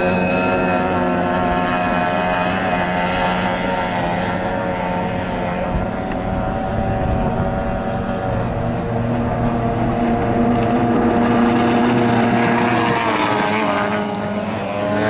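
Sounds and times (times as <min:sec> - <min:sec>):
racing boat engines buzzing: 0:00.0 - 0:15.0.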